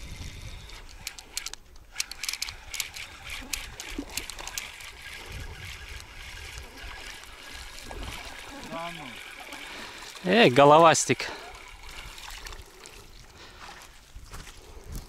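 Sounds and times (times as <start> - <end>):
wind rumble on microphone: 0.0 - 1.1, 5.0 - 7.0, 13.0 - 15.0
fishing reel clicks and rattles: 0.0 - 12.2.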